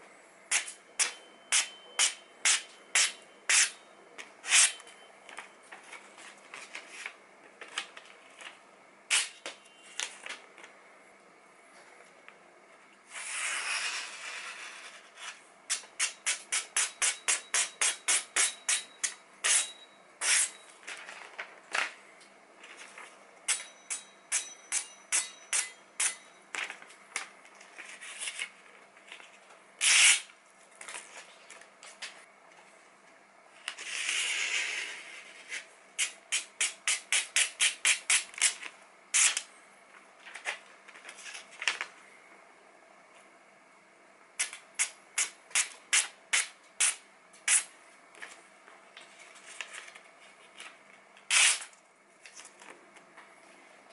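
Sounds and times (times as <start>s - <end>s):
paper rustling: 5.3s - 8.6s, 20.7s - 22.0s, 22.6s - 23.2s, 40.2s - 42.0s, 49.0s - 50.9s.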